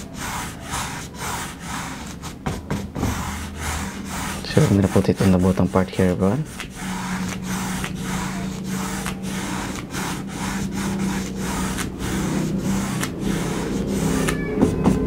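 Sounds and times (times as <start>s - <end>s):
brush scrubbing paint on canvas: 0.0s - 15.0s
steady low hum: 0.0s - 15.0s.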